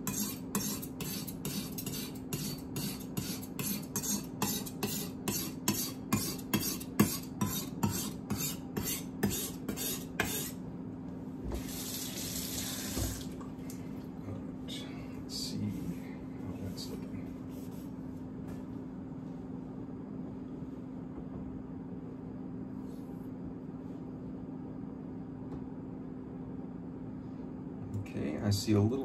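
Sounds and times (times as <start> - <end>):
knife scraping on whetstone: 0.0 - 10.6
water running from tap: 11.6 - 13.5.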